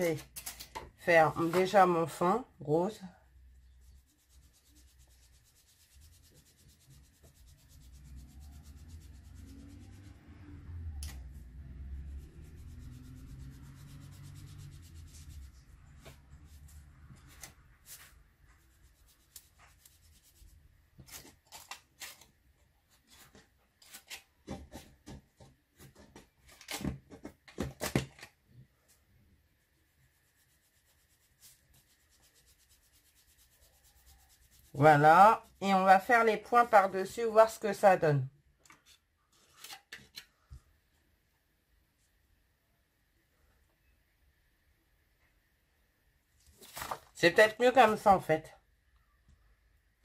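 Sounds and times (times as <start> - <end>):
sponge scuffing on paper: 12.1 - 21.4, 46.5 - 47.2.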